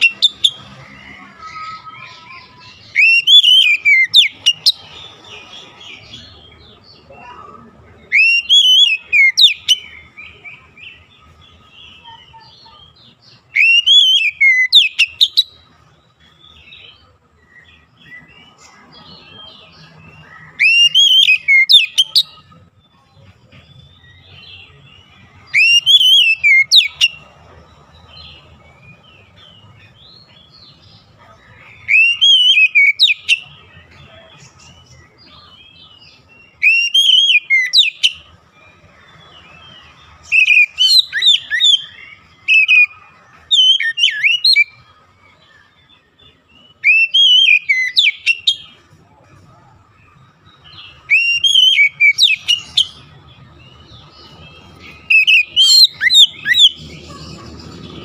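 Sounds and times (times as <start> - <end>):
bird singing whistled phrases: 0.0 - 0.7, 1.5 - 4.8, 8.1 - 10.6, 12.0 - 15.6, 19.9 - 22.4, 25.5 - 27.2, 31.7 - 33.6, 36.5 - 38.3, 40.2 - 44.8, 46.7 - 48.8, 50.6 - 53.1, 53.7 - 57.2.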